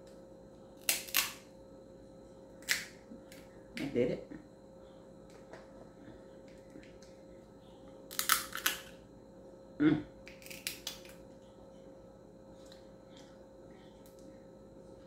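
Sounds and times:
crab shell cracking: 0.8s - 1.4s, 2.6s - 3.4s, 8.1s - 8.9s, 10.2s - 11.2s.

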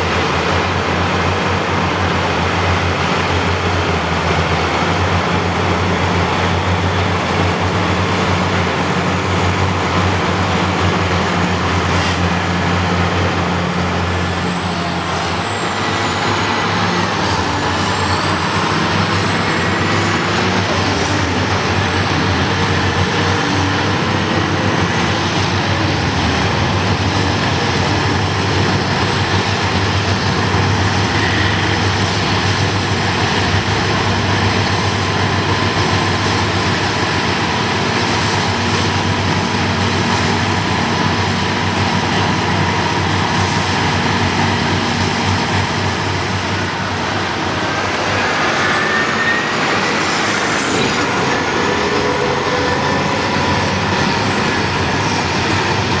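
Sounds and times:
diesel engines droning: 0.0s - 56.0s
high whine: 0.0s - 56.0s.

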